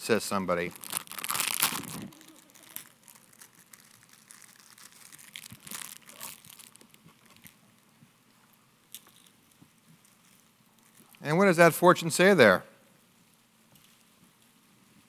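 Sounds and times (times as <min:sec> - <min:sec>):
wrappers crinkling and tearing: 0:00.4 - 0:07.9, 0:08.9 - 0:11.2.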